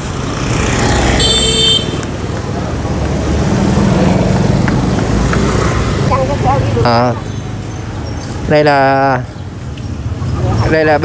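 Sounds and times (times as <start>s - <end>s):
vehicle engine passing close: 0.0s - 1.4s
road traffic: 0.0s - 11.0s
car horn beep: 1.1s - 2.0s.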